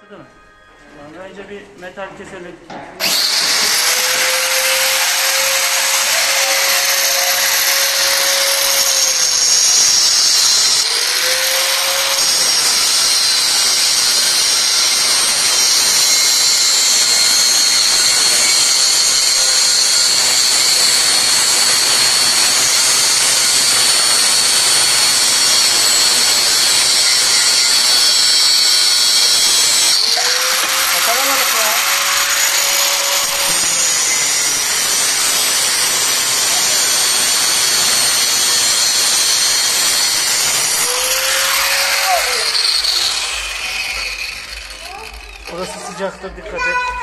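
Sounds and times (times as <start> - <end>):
angle grinder cutting steel: 3.0 - 46.9.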